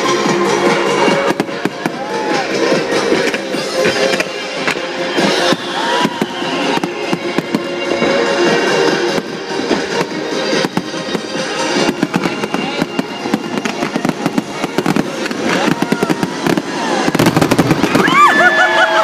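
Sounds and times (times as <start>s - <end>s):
background music: 0.0s - 19.0s
fireworks bursting and crackling: 0.0s - 19.0s
crowd whooping: 1.6s - 2.8s, 5.0s - 7.6s, 15.5s - 19.0s.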